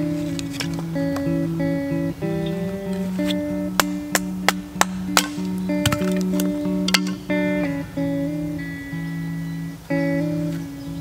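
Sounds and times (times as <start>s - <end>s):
acoustic guitar instrumental: 0.0s - 11.0s.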